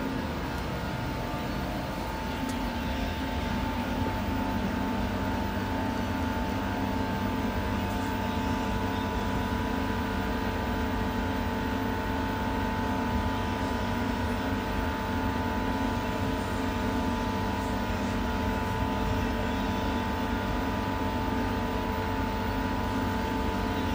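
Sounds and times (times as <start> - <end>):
train rumble in tunnel: 0.0 - 23.9.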